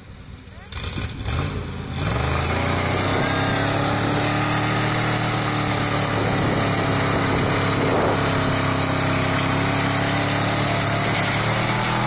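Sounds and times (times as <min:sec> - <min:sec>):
truck engines revving hard: 0:00.0 - 0:12.0
tyres spinning in dirt: 0:03.2 - 0:12.0.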